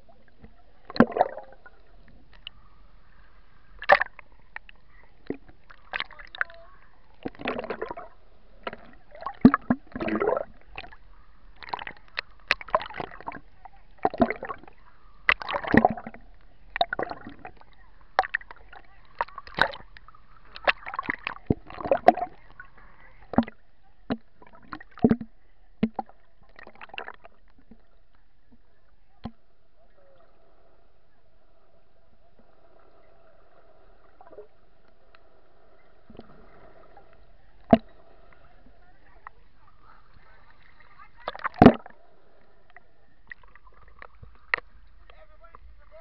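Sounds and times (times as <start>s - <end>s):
underwater splashing and gurgling: 0.0s - 2.7s, 3.7s - 27.9s, 32.2s - 45.1s.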